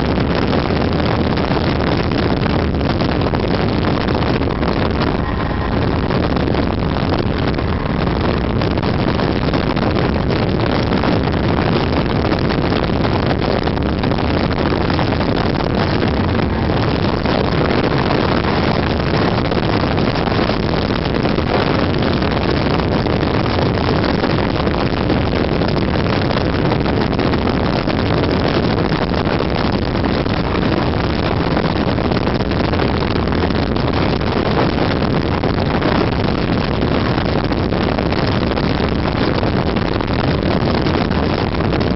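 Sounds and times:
snowmobile engine running: 0.0s - 41.9s
wind noise on microphone: 0.0s - 41.9s.

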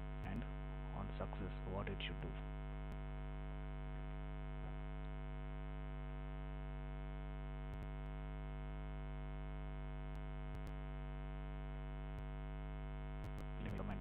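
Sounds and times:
electrical mains hum: 0.0s - 14.0s
faint keyboard clicks: 7.7s - 7.9s, 10.1s - 10.8s, 13.2s - 14.0s.

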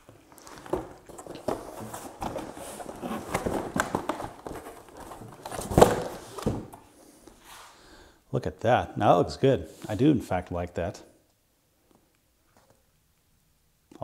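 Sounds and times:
cardboard boxes scraping and rustling: 0.4s - 6.8s.

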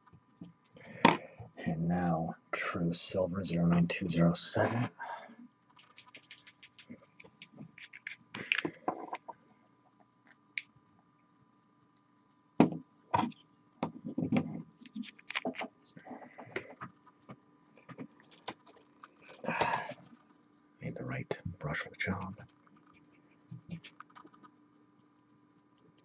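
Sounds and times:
faint steady hum: 0.0s - 26.0s
small clicks: 5.7s - 8.7s
knocks and taps on desk: 12.6s - 12.8s.

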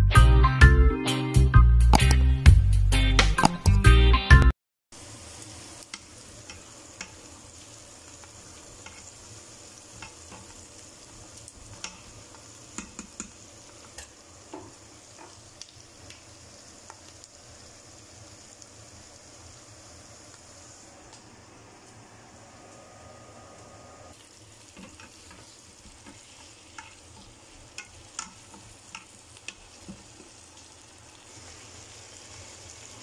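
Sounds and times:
onions sizzling in oil: 4.9s - 33.0s
spatula clicking against pot: 12.8s - 13.4s, 27.8s - 29.6s.

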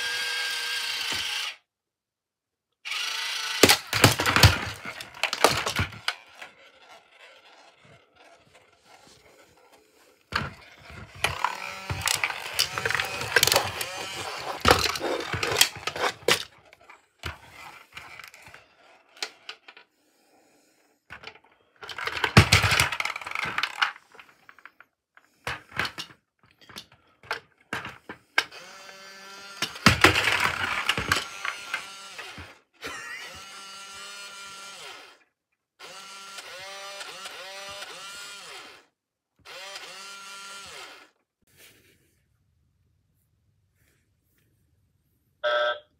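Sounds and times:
plastic toys clattering on wooden floor: 3.6s - 20.0s, 21.1s - 28.5s, 29.4s - 32.6s
warbling electronic toy tones: 45.4s - 45.8s.

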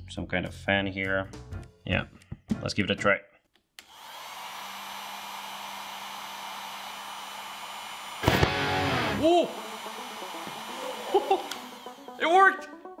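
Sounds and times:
heat gun airflow hiss: 3.9s - 12.2s
spray igniting burst: 8.2s - 9.2s.

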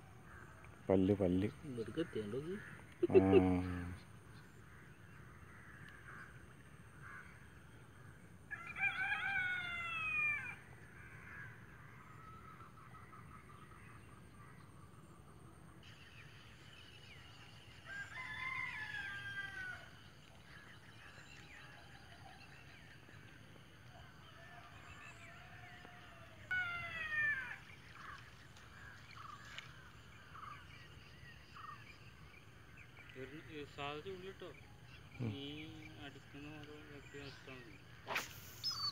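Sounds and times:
rooster crowing: 8.5s - 10.5s, 17.9s - 19.9s
bird call falling in pitch: 25.8s - 28.1s
short bird chirps: 38.0s - 38.9s.

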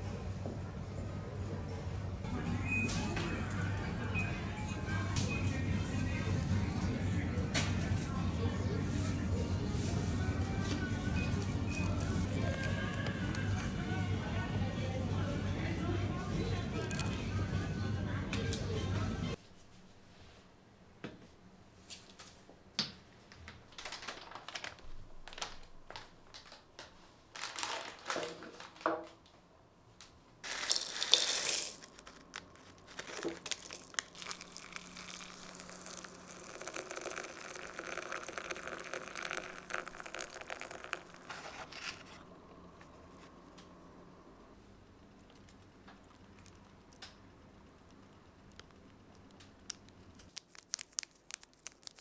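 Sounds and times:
plastic packets crinkling and tearing: 23.7s - 28.8s, 30.4s - 42.1s, 48.5s - 52.0s
dried food shaken into bowl: 30.4s - 42.0s.

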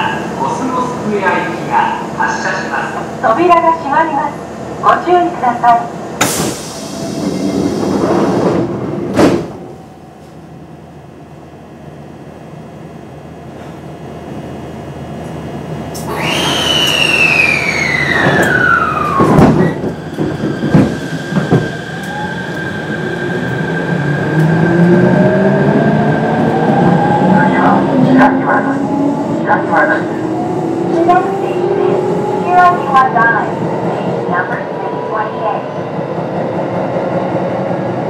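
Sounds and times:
train doors sliding shut: 6.2s - 10.4s, 15.2s - 22.8s
train motor whine: 15.9s - 22.9s.

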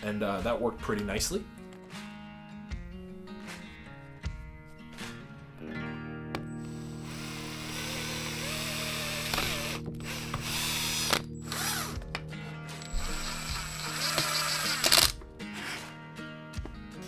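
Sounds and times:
cordless drill boring into wood: 6.6s - 12.0s, 12.8s - 15.9s.

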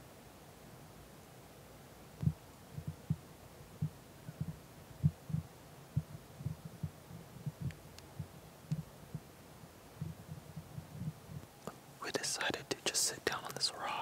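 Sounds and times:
low dull thumps: 2.2s - 11.5s
faint clicks: 3.8s - 9.3s.

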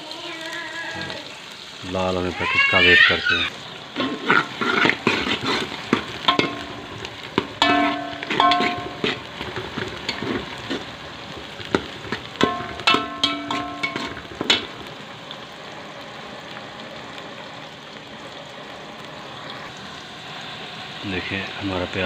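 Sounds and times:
onions sizzling in oil: 0.0s - 22.0s.

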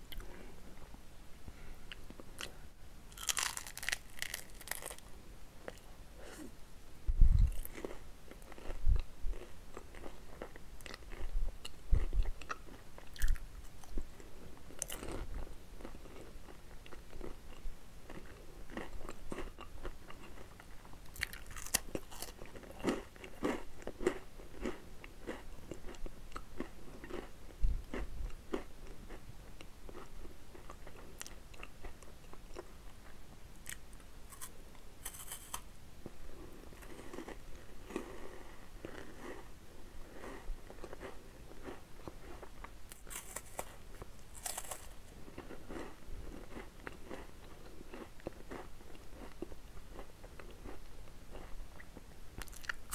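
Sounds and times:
crunchy snack being chewed: 3.1s - 5.8s, 7.4s - 14.0s, 14.7s - 32.7s, 33.6s - 35.7s, 40.1s - 52.9s.

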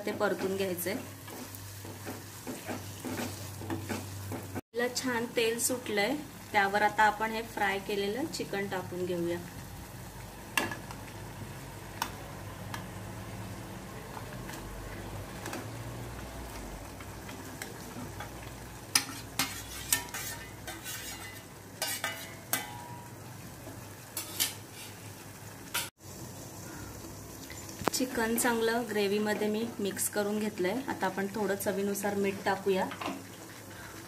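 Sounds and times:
gravy sizzling in oil: 0.0s - 34.0s
steel bowl and spoon clinking on pan: 18.9s - 23.1s, 24.2s - 25.0s.

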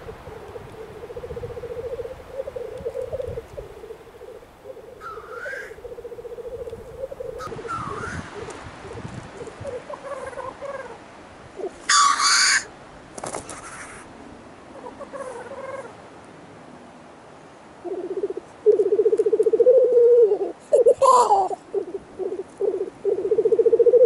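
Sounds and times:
grouse bubbling coo: 0.0s - 11.0s, 17.8s - 24.0s.

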